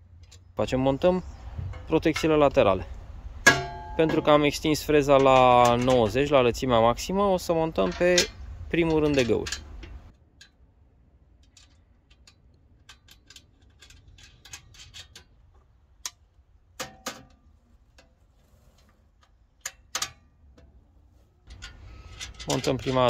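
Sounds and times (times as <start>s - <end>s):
metal knocks: 3.4s - 6.4s
metallic clicks and clinks: 21.5s - 23.0s.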